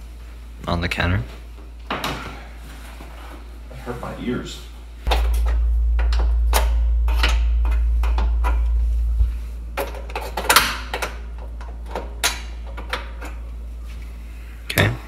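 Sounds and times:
steady low rumble: 5.0 - 14.4.

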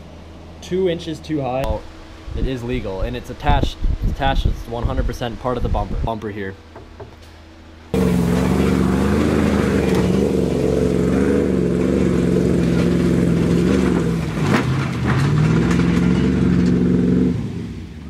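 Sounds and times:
truck engine revving: 7.9 - 18.0.

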